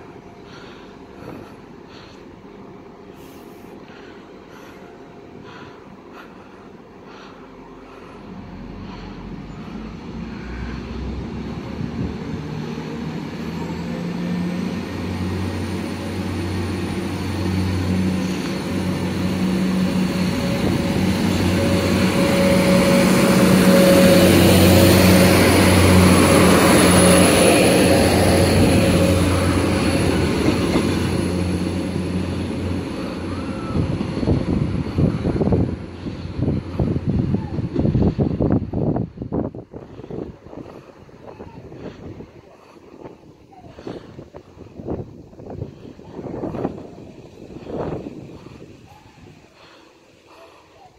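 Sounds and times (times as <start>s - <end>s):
diesel train passing: 0.0s - 50.9s
wind buffeting microphone: 10.9s - 13.4s, 16.2s - 49.7s.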